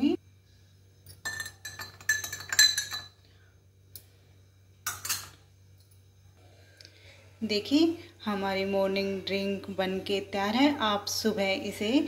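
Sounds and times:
spoon clinking in glass: 1.1s - 3.2s, 4.9s - 5.4s.

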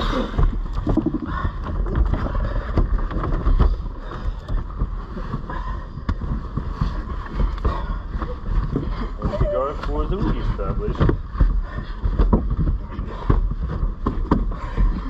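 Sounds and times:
low rumble: 0.0s - 15.0s
dull knocks: 0.3s - 15.0s
bodies rubbing against upholstery: 4.7s - 15.0s.

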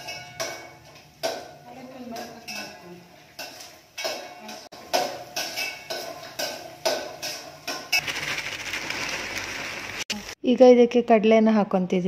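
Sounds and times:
spatula clinking in metal pan: 0.0s - 2.8s, 3.4s - 8.0s.

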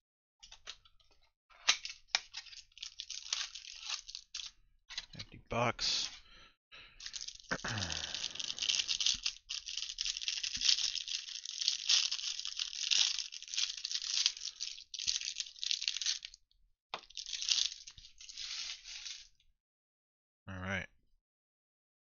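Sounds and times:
plastic wrapper tearing and crinkling: 1.7s - 4.5s, 7.0s - 16.4s, 17.0s - 19.3s.

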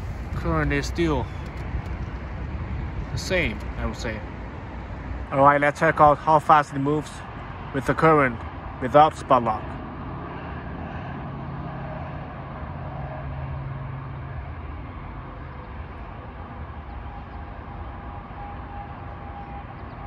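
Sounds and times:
low hum: 0.0s - 5.3s
road traffic rumble: 0.0s - 20.0s.

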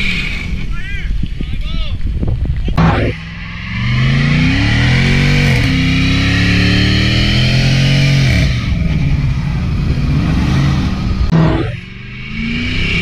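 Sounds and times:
car engine revving high: 2.8s - 13.0s.

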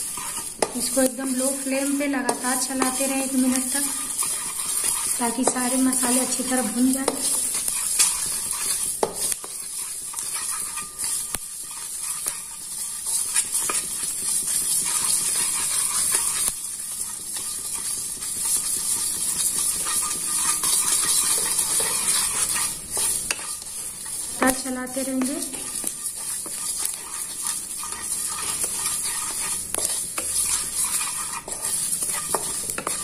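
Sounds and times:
spatula stirring seeds in pan: 0.0s - 33.0s
seeds clicking on metal: 0.3s - 9.6s, 19.8s - 33.0s.

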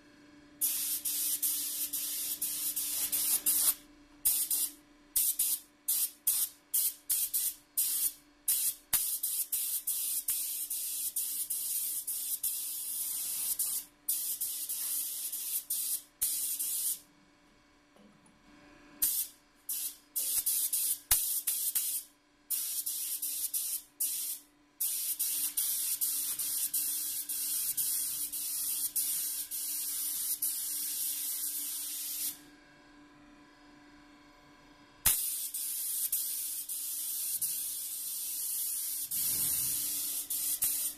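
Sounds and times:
spray gun hissing: 0.6s - 17.0s, 19.0s - 32.4s, 35.1s - 40.9s.

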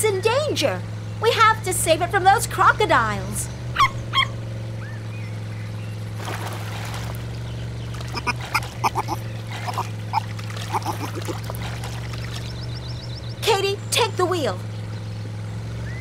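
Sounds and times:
low boat motor hum: 0.0s - 16.0s
squeaky quack-like calls: 8.1s - 11.4s.

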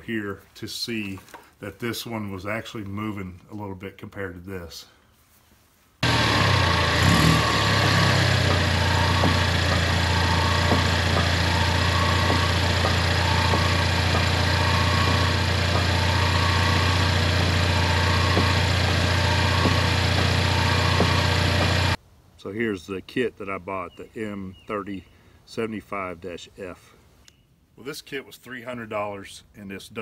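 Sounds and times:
car driving hum: 6.0s - 22.0s
road noise: 6.0s - 22.0s.

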